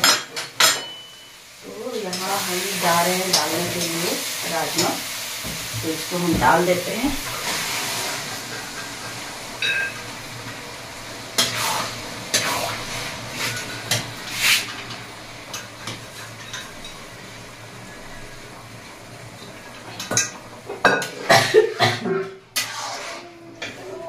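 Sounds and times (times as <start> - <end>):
masala sizzling softly: 0.4 - 21.8, 22.4 - 24.0
spoon scraping metal pot: 22.6 - 23.8.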